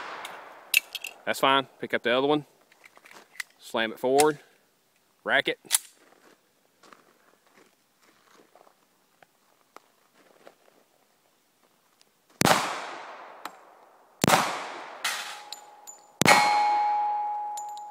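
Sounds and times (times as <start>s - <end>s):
pistol shots: 0.0s - 0.8s, 12.4s - 13.5s, 14.2s - 15.6s, 16.2s - 17.6s
steel plates ringing: 15.1s - 17.9s.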